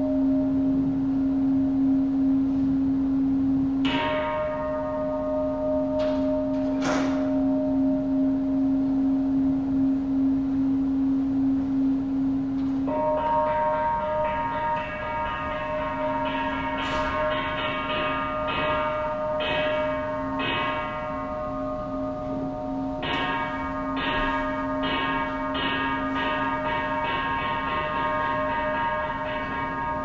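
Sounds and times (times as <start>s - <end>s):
bell-like chimes ringing: 0.0s - 0.8s, 12.9s - 30.0s.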